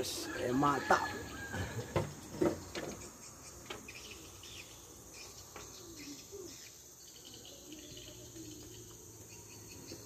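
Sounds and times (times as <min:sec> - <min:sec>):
insects buzzing: 0:00.0 - 0:10.0
faint bird chirps: 0:02.6 - 0:10.0.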